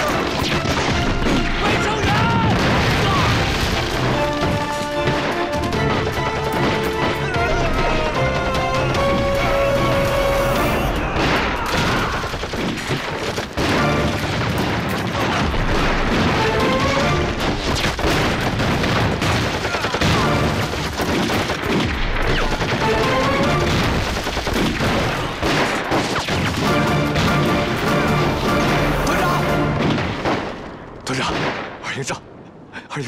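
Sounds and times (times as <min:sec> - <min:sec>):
rifle and machine-gun fire: 0:00.0 - 0:09.5, 0:10.9 - 0:31.8
background music: 0:00.0 - 0:11.8, 0:13.6 - 0:14.4, 0:15.5 - 0:18.5, 0:20.0 - 0:21.1, 0:22.1 - 0:25.6, 0:26.3 - 0:30.3
explosions: 0:00.0 - 0:31.9.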